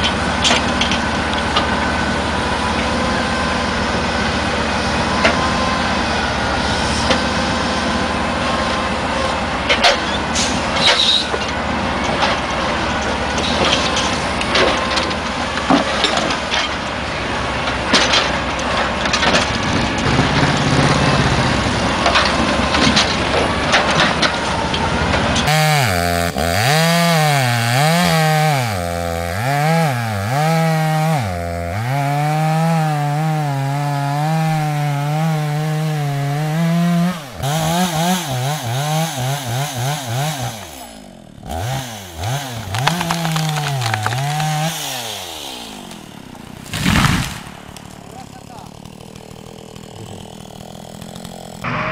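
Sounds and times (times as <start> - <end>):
log loader engine: 0.0 - 51.9
chainsaw revving: 19.4 - 51.9.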